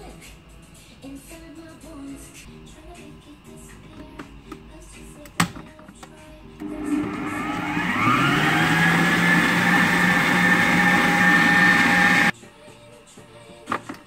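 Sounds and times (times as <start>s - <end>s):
stand mixer motor whining: 6.6s - 12.3s.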